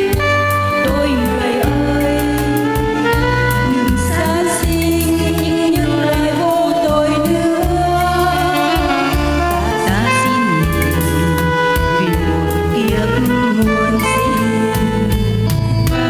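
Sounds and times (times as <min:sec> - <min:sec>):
woman singing into a microphone: 0:00.0 - 0:16.0
repeating bass line: 0:07.4 - 0:11.4.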